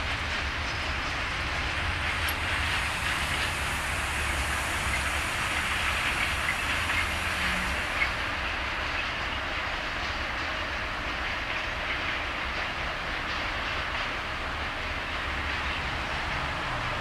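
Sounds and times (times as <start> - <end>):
train wheels rushing on track: 0.0 - 17.0
wheels clacking over rail joints: 0.0 - 17.0.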